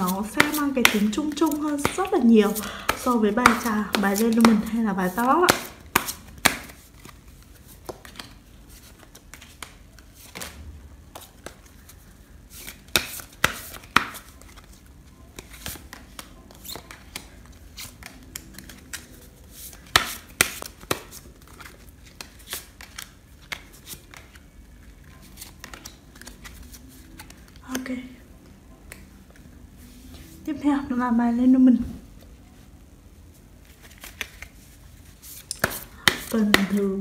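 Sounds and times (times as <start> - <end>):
cards snapping and tapping: 0.1 - 7.2, 7.8 - 11.7, 12.6 - 14.7, 15.4 - 24.4, 25.4 - 26.6, 33.9 - 34.5, 35.4 - 37.0.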